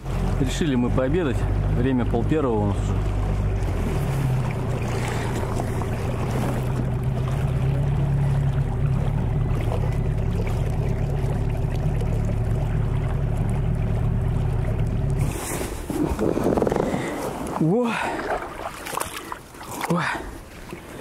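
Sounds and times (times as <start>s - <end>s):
outboard motor running: 0.0s - 21.0s
water noise: 0.0s - 21.0s
wind noise: 15.2s - 17.6s.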